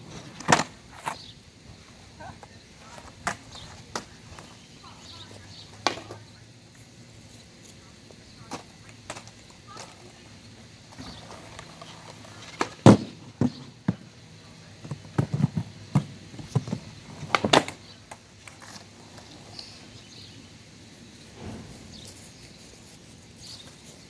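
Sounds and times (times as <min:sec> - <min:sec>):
skateboard clacking on concrete: 0:00.0 - 0:01.3, 0:02.2 - 0:06.8, 0:07.7 - 0:10.3, 0:10.9 - 0:20.2.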